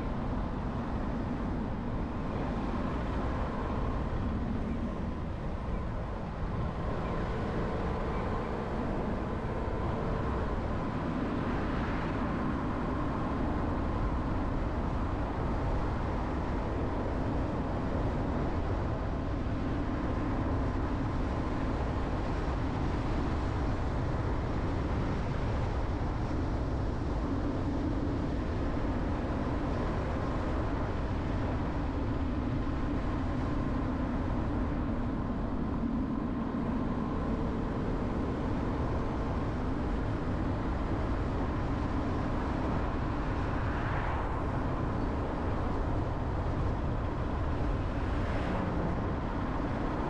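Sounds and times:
road noise: 0.0 - 50.0.

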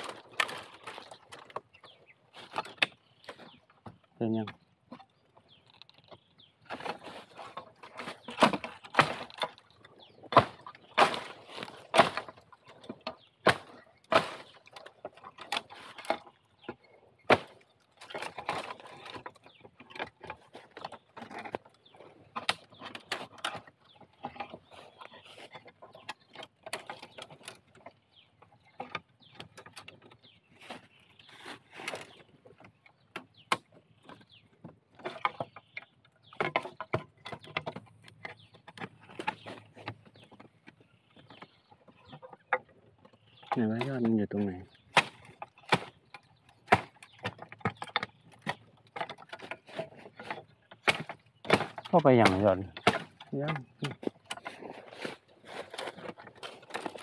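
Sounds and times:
spade knocking and scraping: 6.7 - 21.7, 43.0 - 57.0.

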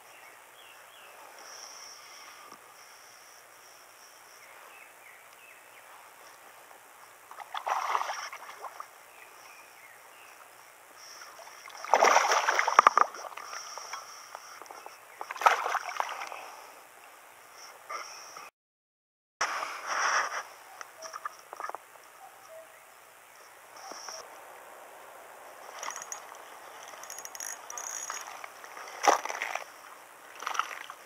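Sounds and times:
fish splashing in water: 7.3 - 8.7, 11.4 - 13.6, 15.3 - 16.2, 25.7 - 29.7, 30.3 - 31.0.

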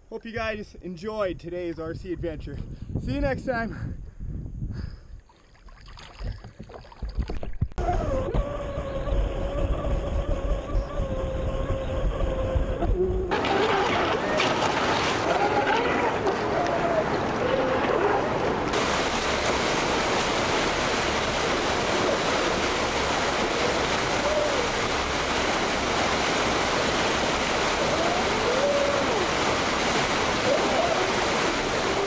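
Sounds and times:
whitewater rushing through rapids: 13.3 - 32.0.

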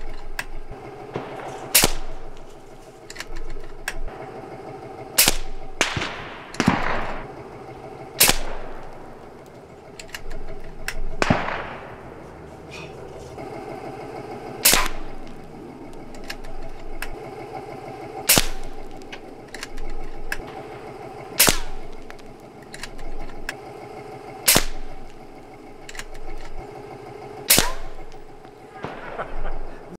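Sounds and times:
air rifle shots cracking: 0.2 - 23.6, 24.3 - 29.8
faint clicks: 8.4 - 11.5, 14.8 - 17.2.

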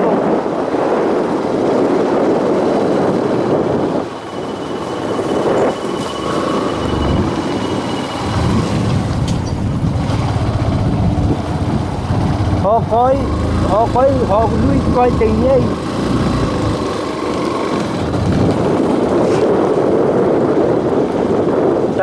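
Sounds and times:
vehicle driving on dirt road: 0.0 - 22.0
wind rumbling on microphone: 0.0 - 22.0
low engine note: 5.3 - 18.3.

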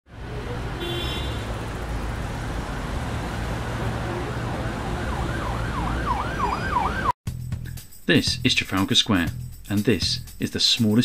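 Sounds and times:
road traffic rumble: 0.0 - 7.2
emergency vehicle siren: 2.6 - 7.2.

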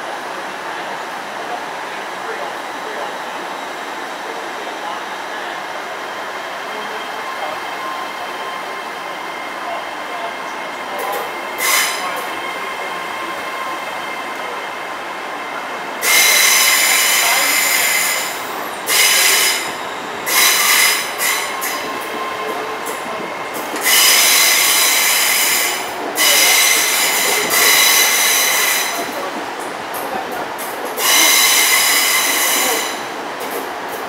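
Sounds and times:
train rumble: 0.0 - 34.0
train wheels squealing: 10.5 - 14.6, 16.0 - 23.0, 23.8 - 29.2, 31.0 - 33.0.

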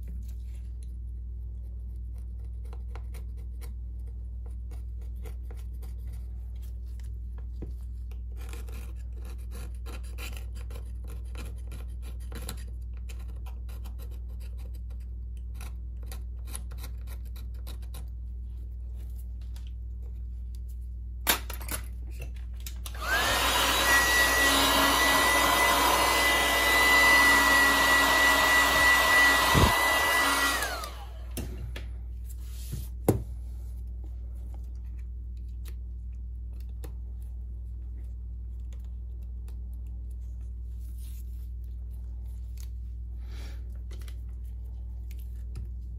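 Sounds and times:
metal tool scratching phone frame: 8.2 - 18.2
electric blower whine: 22.8 - 31.6.

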